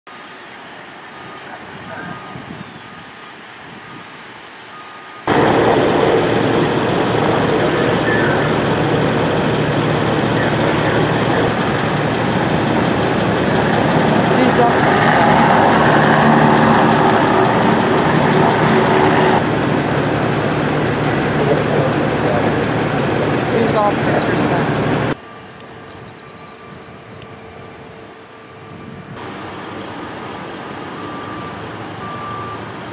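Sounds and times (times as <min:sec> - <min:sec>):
traffic ambience: 0:00.1 - 0:32.9
vehicle engines idling: 0:04.4 - 0:32.9
faint short beeps: 0:04.7 - 0:05.3
reversing alarm beep: 0:04.7 - 0:05.3, 0:30.9 - 0:32.7.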